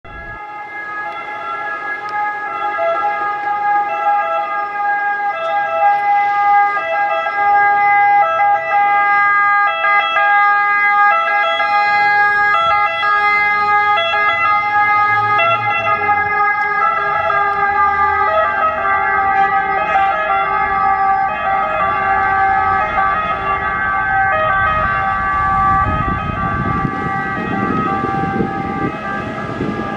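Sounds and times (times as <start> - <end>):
ambulance two-tone siren: 0.1 - 29.9
low vehicle rumble: 12.0 - 29.9.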